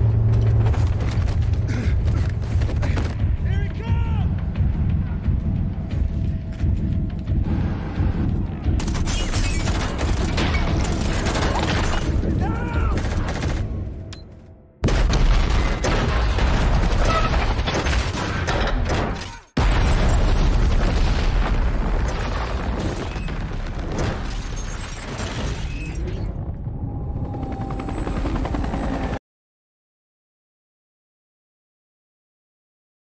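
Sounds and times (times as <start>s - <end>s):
explosion blast: 19.6s - 24.3s.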